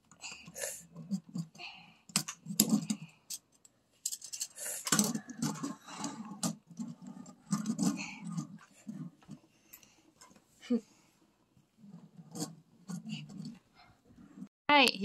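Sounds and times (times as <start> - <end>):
wire frame clinking and rattling: 2.1 - 8.7.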